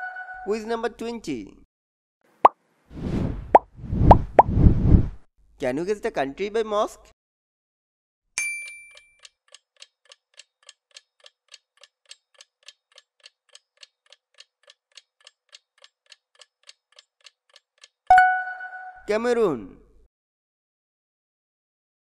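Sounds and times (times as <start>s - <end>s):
chime: 8.4s - 9.2s
clock-like ticking: 9.2s - 18.1s.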